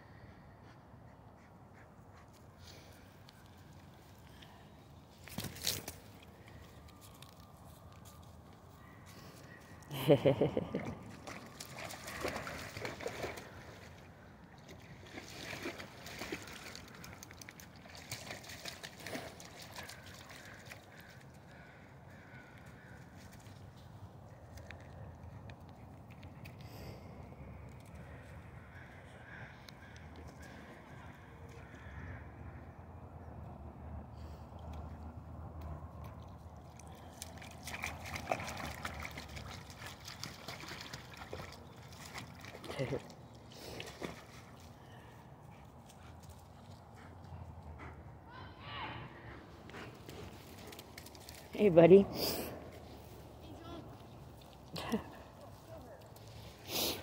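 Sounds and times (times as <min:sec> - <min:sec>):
dog paws splashing in water: 0:10.7 - 0:26.6, 0:35.7 - 0:47.6, 0:49.8 - 0:52.0.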